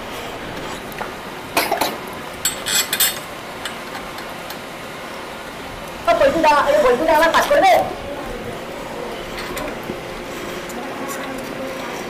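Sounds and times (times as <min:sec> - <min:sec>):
steady background hiss: 0:00.0 - 0:12.0
metallic clinks and scrapes: 0:02.5 - 0:03.3.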